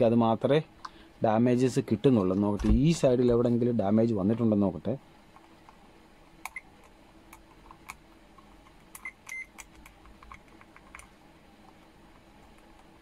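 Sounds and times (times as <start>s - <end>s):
meter beeps: 9.0s - 9.5s.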